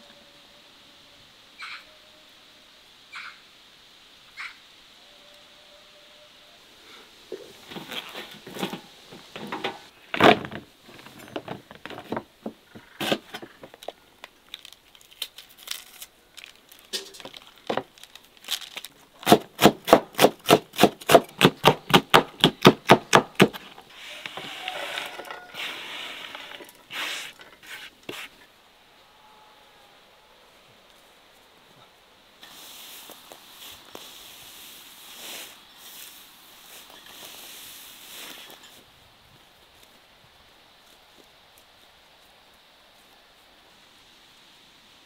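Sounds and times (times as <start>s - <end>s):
peppers snapping and tearing: 14.2s - 21.8s
rough scraping rush: 23.9s - 28.4s.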